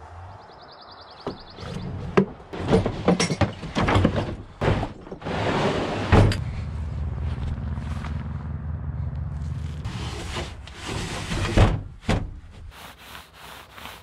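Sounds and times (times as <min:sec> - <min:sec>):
wooden knocks and scrapes: 0:01.3 - 0:06.4, 0:09.4 - 0:12.8
wooden drawer sliding: 0:01.6 - 0:06.4, 0:09.9 - 0:11.9.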